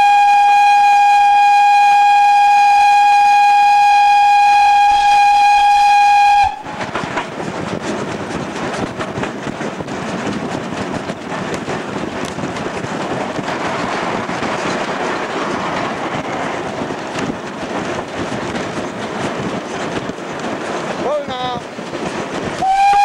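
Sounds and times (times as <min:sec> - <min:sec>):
steam locomotive running noise: 0:00.0 - 0:23.0
wheels clicking over rail joints: 0:06.2 - 0:23.0.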